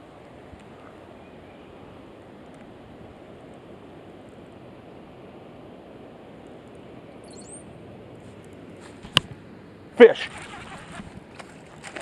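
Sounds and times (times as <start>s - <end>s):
outdoor background noise by water: 0.0s - 12.0s
brief high chirp: 7.2s - 7.6s.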